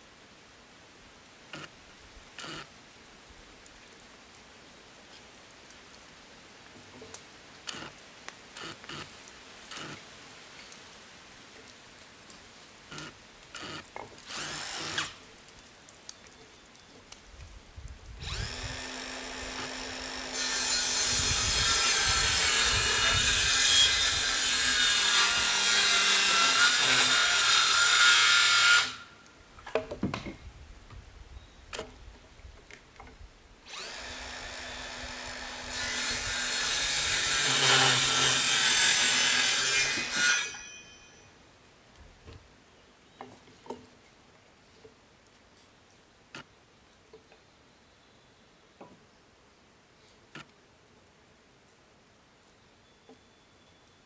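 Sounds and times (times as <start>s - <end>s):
power tool cutting wood: 2.4s - 2.7s, 7.7s - 7.9s, 8.6s - 9.1s, 9.7s - 10.0s, 12.9s - 15.2s, 18.2s - 29.0s, 33.7s - 40.7s
wood knocks and handling clicks: 29.6s - 30.4s.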